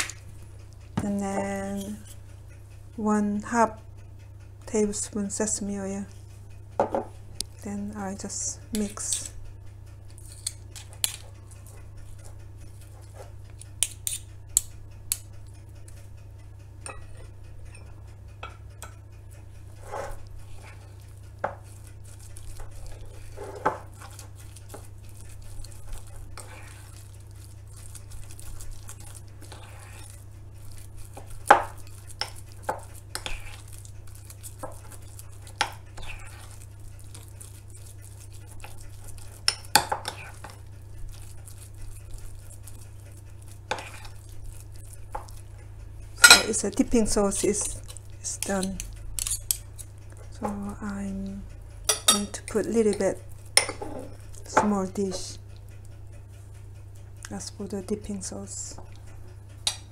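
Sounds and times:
spoon stirring paste in bowl: 0.0 - 2.6, 6.8 - 9.4, 10.0 - 59.9
steady low hum: 0.0 - 59.9
spoon clinking on bowl: 51.9 - 53.0.

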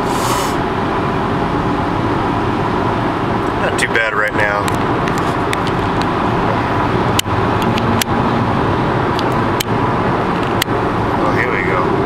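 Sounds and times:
tyre hiss: 0.0 - 0.6
car road and engine rumble: 0.0 - 12.0.

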